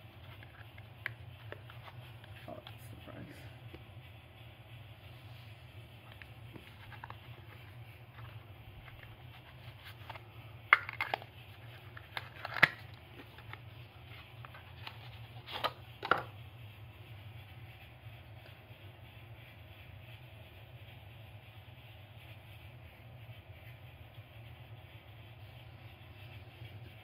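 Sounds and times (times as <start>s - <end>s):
paperboard box rubbing: 6.1s - 16.1s
box clicks and scrapes: 6.1s - 16.3s.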